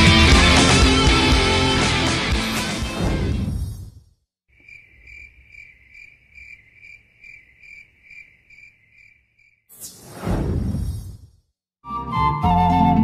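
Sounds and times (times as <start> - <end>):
music: 0.0 - 3.3, 11.8 - 13.0
cricket trilling: 4.5 - 9.7.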